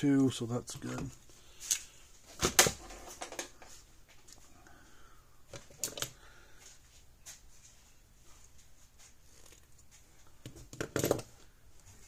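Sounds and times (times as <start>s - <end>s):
tools clicking and knocking: 10.4s - 11.3s.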